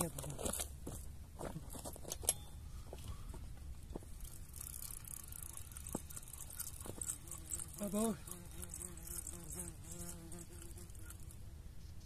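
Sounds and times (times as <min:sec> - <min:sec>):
fishing reel clicks and rattles: 0:04.3 - 0:06.8.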